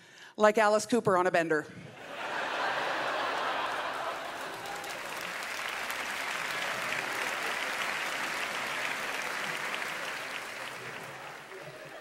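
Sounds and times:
audience applauding: 2.2s - 12.0s.

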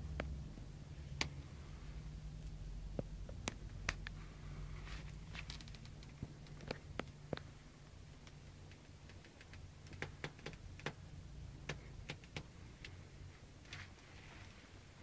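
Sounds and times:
low steady hum: 0.0s - 15.0s
faint sharp clicks and taps: 2.4s - 4.2s, 5.0s - 7.6s, 8.2s - 13.0s.

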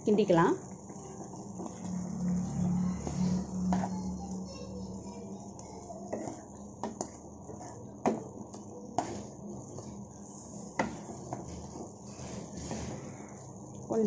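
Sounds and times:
spatula scraping frying pan: 0.7s - 8.3s, 9.0s - 13.5s
spatula tapping pan: 3.6s - 4.4s, 5.6s - 9.9s, 10.7s - 11.9s.

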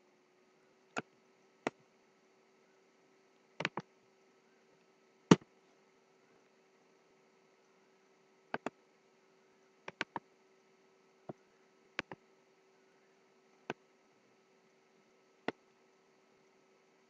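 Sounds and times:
faint steady hum: 0.0s - 17.0s
computer mouse clicks: 3.6s - 3.9s, 8.5s - 8.8s, 9.9s - 10.2s, 12.0s - 12.2s.

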